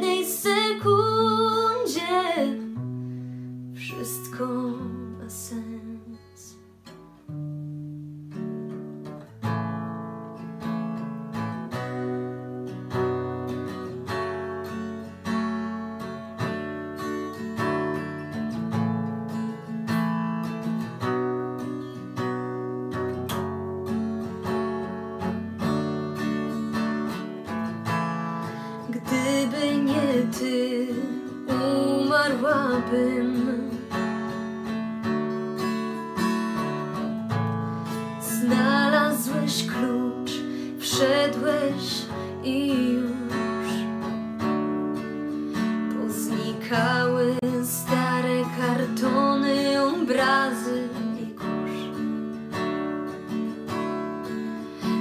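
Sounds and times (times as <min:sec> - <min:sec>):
acoustic guitar strumming: 0:00.0 - 0:55.0
person singing: 0:28.9 - 0:33.9.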